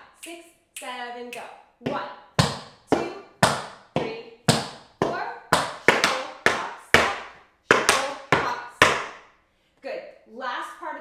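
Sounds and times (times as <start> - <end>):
tap shoes on wooden board: 1.9 - 9.2.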